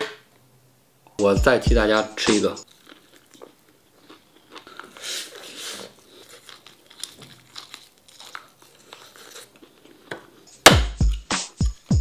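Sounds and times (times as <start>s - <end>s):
person chewing: 2.6s - 11.3s.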